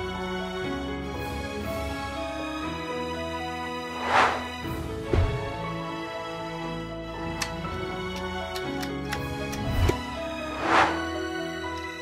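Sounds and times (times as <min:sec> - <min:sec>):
light background music: 0:00.0 - 0:12.0
short whoosh: 0:04.0 - 0:04.6, 0:10.6 - 0:11.1.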